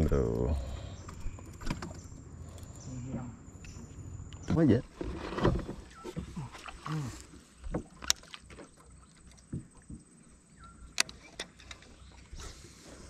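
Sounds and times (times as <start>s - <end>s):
fishing rod and reel handling clicks: 10.9s - 12.0s.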